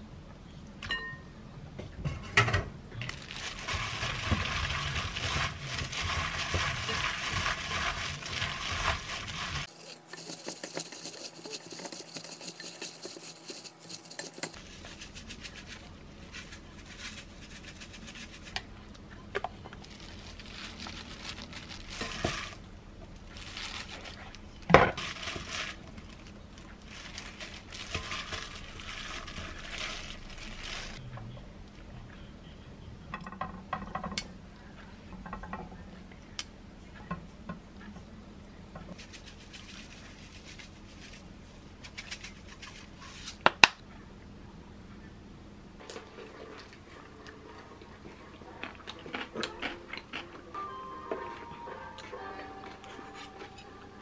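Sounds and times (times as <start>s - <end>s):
plastic glove crinkling: 3.1s - 18.6s, 19.7s - 22.6s, 23.2s - 31.0s, 38.9s - 43.4s.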